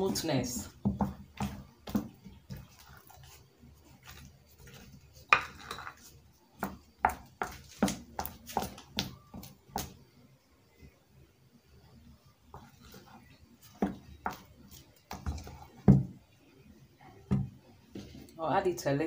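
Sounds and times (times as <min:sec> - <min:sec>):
spoon beating batter in glass bowl: 0:00.0 - 0:10.0.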